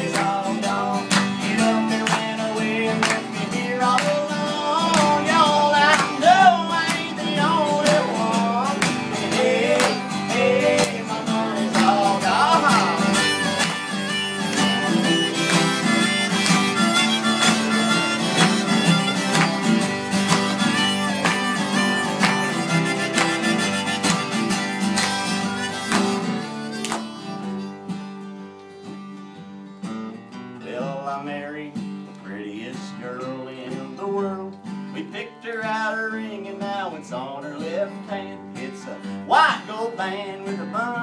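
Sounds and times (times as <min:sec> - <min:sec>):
acoustic guitars strumming: 0:00.0 - 0:41.0
harmonica solo: 0:04.5 - 0:29.2.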